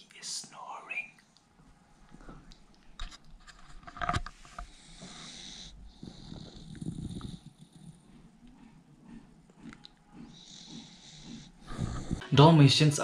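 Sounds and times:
dog snoring: 4.7s - 12.9s.

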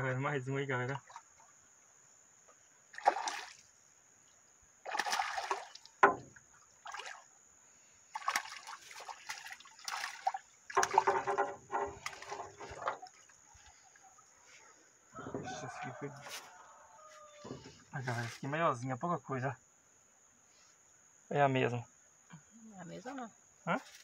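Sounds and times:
fish splashing at water surface: 2.9s - 3.7s, 4.8s - 7.3s, 8.1s - 13.4s.

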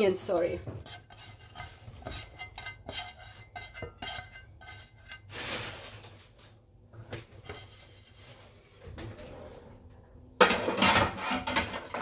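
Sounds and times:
utensils and dishes clinking: 10.4s - 12.0s.

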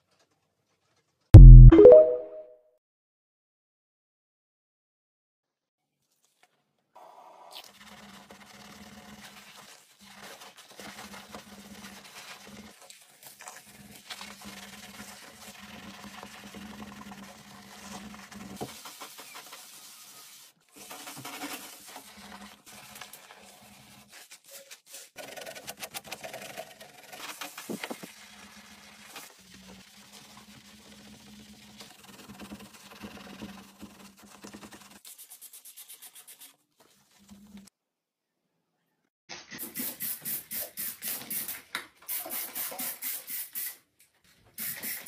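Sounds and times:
sponge scrubbing ceramic basin: 7.6s - 25.6s, 26.3s - 37.6s.

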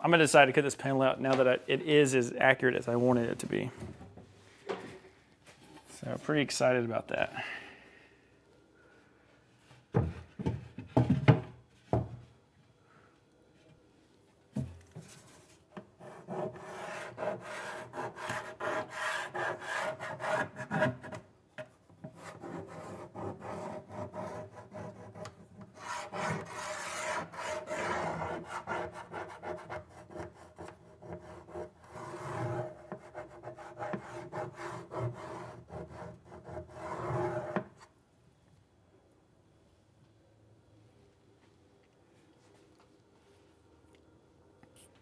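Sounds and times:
tool scratching on wood: 15.3s - 21.2s, 22.0s - 37.9s.

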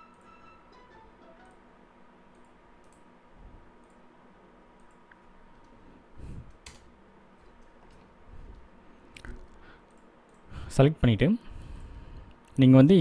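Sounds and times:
computer mouse clicks: 2.3s - 3.1s, 3.8s - 4.0s, 4.8s - 5.8s, 9.2s - 10.5s.

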